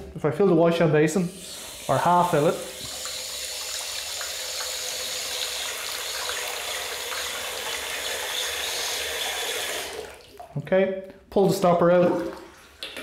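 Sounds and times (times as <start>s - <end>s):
tap running into basin: 2.4s - 10.6s.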